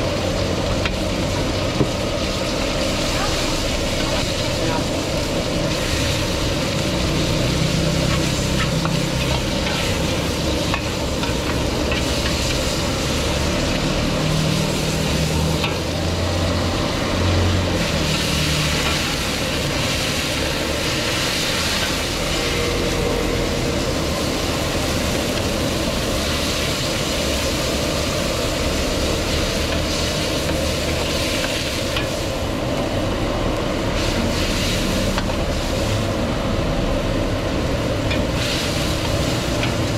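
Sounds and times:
food sizzling in a wok: 0.0s - 39.9s
gas burner rumble: 0.0s - 39.9s
metal ladle scraping a wok: 5.7s - 16.0s.

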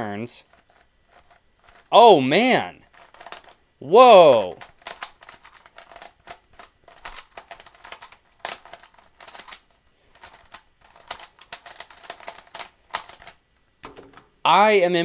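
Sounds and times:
puzzle cube clicking: 2.8s - 14.4s.

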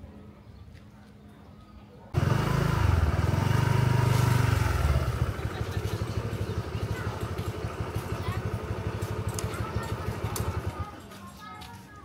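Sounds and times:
small engine running: 2.2s - 11.0s.

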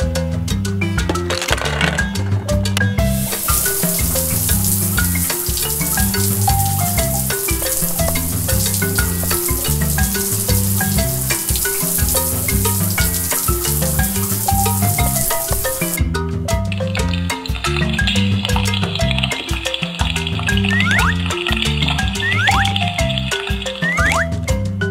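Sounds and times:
bouncy background music: 0.0s - 24.9s
water running from faucet: 3.1s - 16.0s, 17.5s - 24.2s.

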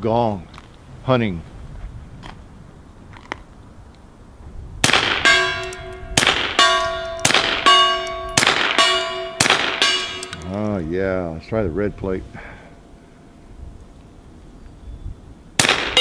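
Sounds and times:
steel gong targets clanging: 4.9s - 13.0s.

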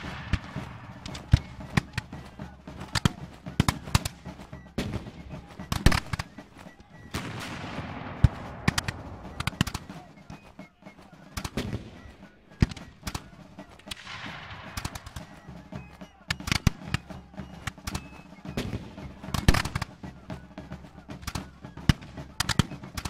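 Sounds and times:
gunfire shots: 0.0s - 4.2s, 7.1s - 10.1s, 11.3s - 12.0s, 12.6s - 15.4s.

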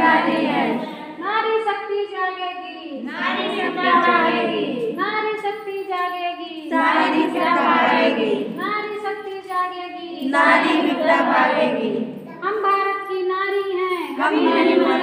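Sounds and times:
women singing in unison: 0.0s - 1.2s, 3.1s - 5.0s, 6.6s - 8.7s, 10.2s - 12.2s, 14.2s - 15.0s.

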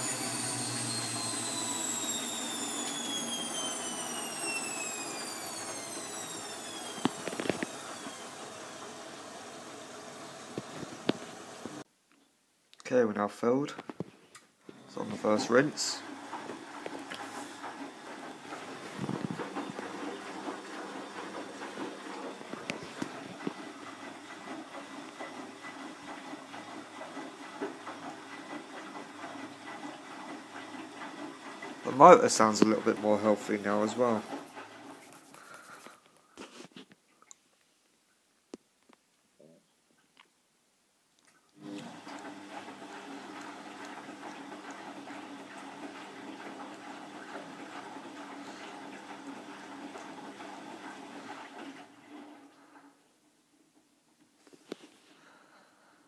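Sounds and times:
washing machine filling with water: 0.0s - 11.9s, 14.7s - 35.9s, 41.6s - 54.3s
washing machine drum tumbling: 14.7s - 34.9s.

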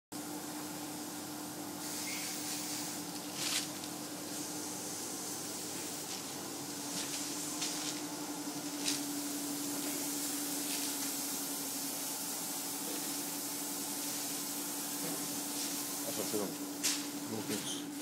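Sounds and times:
background hiss: 4.3s - 17.5s.

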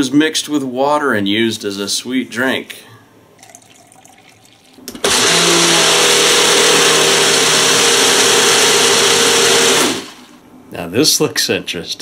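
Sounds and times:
blender running: 4.9s - 10.4s.

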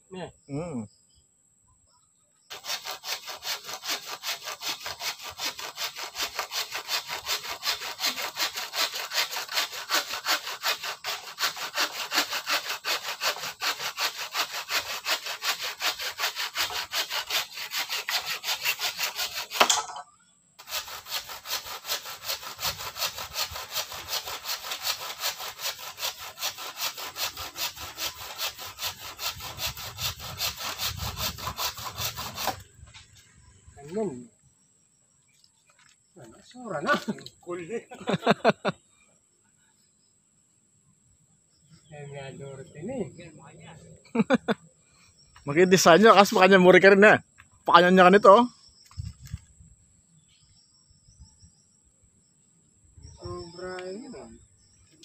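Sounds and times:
hand saw cutting: 2.5s - 19.9s, 20.6s - 32.7s, 45.6s - 46.7s.

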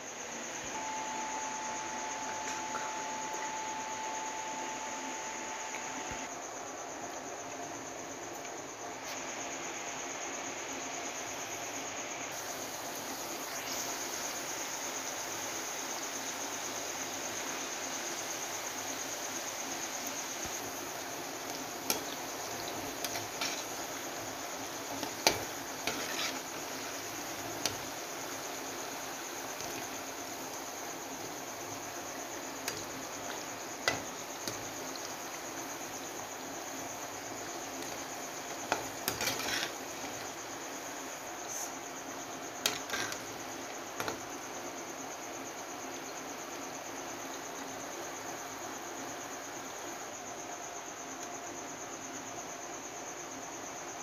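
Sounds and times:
oil sizzling: 12.3s - 46.3s
metal spoon clinking and scraping pan: 38.7s - 40.2s.

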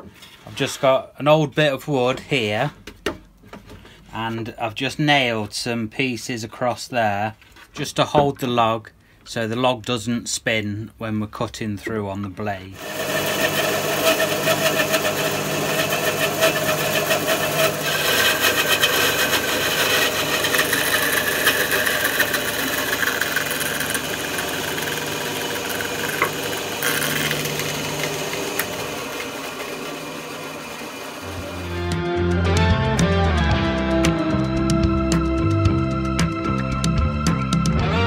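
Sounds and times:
saw blade rasping through wood: 12.8s - 31.6s
bandsaw motor hum: 12.8s - 32.0s.

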